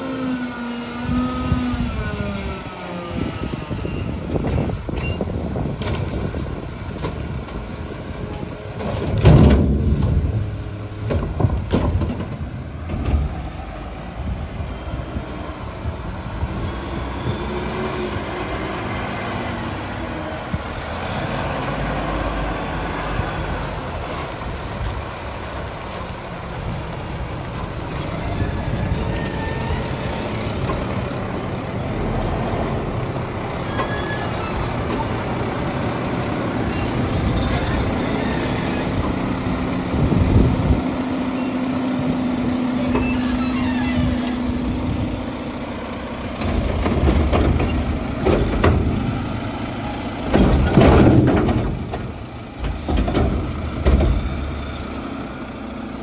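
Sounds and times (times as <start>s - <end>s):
garbage truck engine running: 19.3s - 56.0s.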